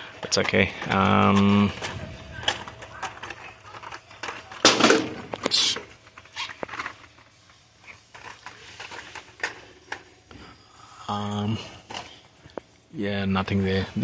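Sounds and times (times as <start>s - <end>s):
blister-pack cards rustling and clacking: 0.0s - 10.3s.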